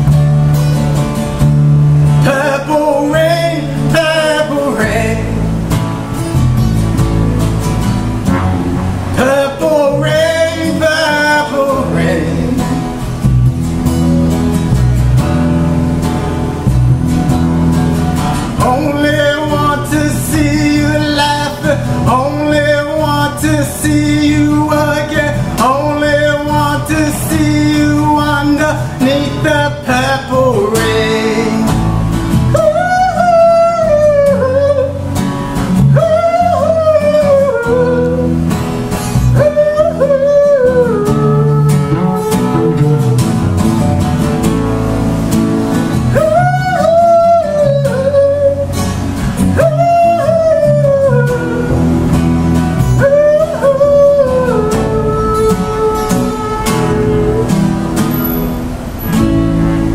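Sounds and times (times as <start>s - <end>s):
strummed acoustic guitar: 0.0s - 59.9s
man singing wordless melody: 2.1s - 5.7s, 9.1s - 13.2s, 18.4s - 35.1s, 35.7s - 38.5s, 39.3s - 43.6s, 46.0s - 57.8s.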